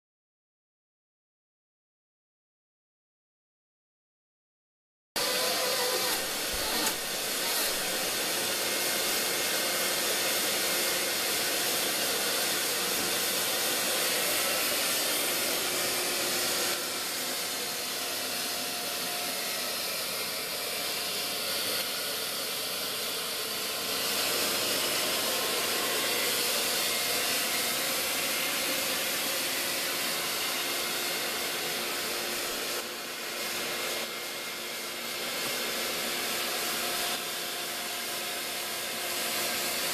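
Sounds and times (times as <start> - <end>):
vacuum cleaner running: 5.2 - 39.9.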